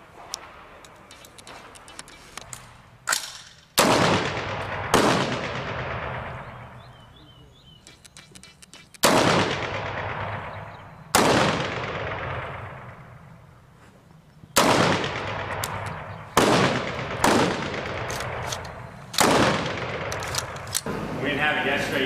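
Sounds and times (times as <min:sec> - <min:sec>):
rifle shots with echo: 0:03.1 - 0:07.2, 0:08.8 - 0:13.4, 0:14.6 - 0:20.9
small sharp report: 0:06.3 - 0:09.2.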